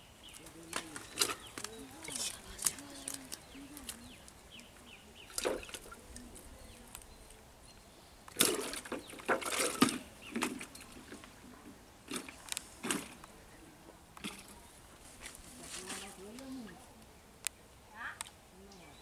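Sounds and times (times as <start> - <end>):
small birds chirping faintly: 0.0 - 19.0.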